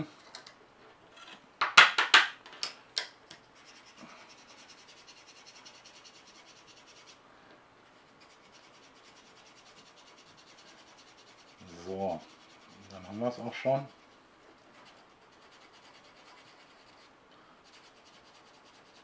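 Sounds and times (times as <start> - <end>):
sanding file scratching plastic: 3.6 - 7.2, 7.8 - 19.0.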